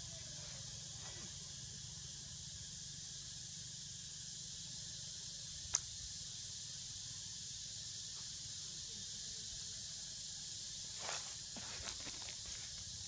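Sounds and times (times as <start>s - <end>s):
sharp click: 5.7s - 5.9s.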